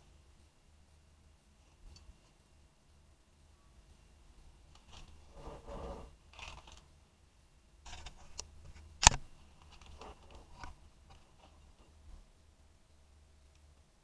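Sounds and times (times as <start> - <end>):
turntable rustles and scrapes: 4.7 - 6.8
sharp click: 8.4 - 9.3.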